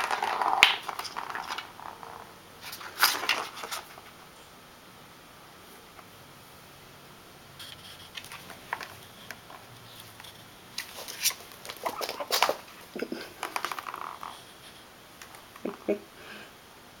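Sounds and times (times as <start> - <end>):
plastic balls rattling in track: 0.0 - 4.0, 8.2 - 14.5.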